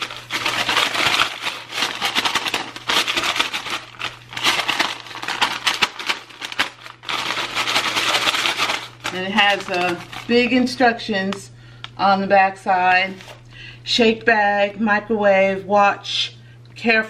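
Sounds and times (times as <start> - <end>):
paper bag crinkling: 0.0 - 10.8, 13.0 - 13.4.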